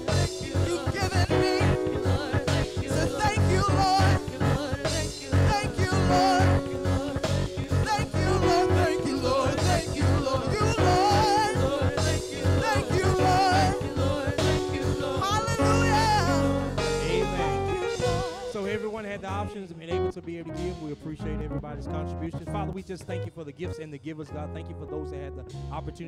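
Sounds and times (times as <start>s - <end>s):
people singing with vibrato: 0.0s - 19.0s
band accompaniment: 0.0s - 19.4s.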